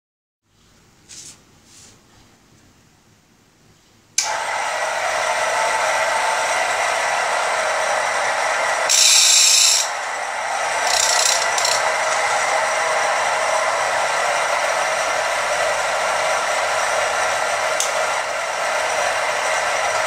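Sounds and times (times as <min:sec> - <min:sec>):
loud high hiss: 0:04.2 - 0:20.0
grinder motor whirring: 0:08.9 - 0:10.0, 0:10.7 - 0:12.2.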